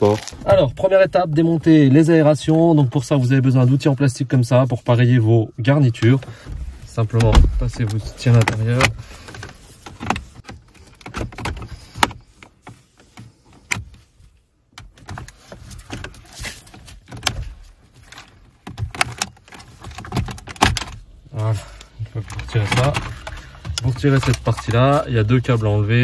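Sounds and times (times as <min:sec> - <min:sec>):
plastic clicks and scraping: 0:06.0 - 0:14.1, 0:14.7 - 0:25.6.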